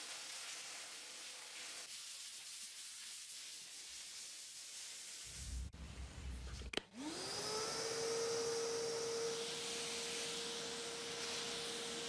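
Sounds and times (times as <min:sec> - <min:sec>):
shop vacuum motor whine: 0:06.9 - 0:12.0.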